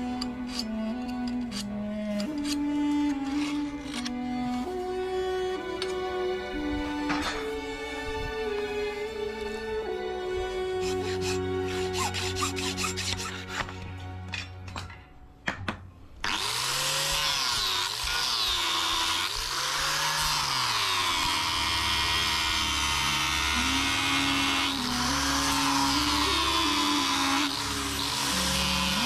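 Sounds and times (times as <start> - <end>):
hacksaw cutting metal: 0.0 - 4.6, 5.8 - 6.0, 7.1 - 7.5, 10.7 - 15.0, 16.2 - 29.0
angle grinder grinding: 0.0 - 15.1, 16.2 - 29.0.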